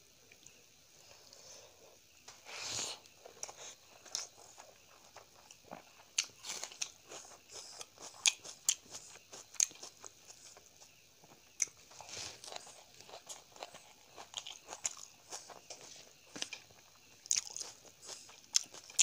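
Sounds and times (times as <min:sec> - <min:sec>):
wet chewing: 0:03.3 - 0:19.0.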